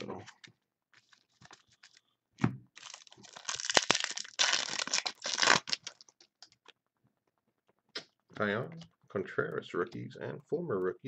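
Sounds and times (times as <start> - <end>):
wrapper crinkling and tearing: 2.8 - 6.7.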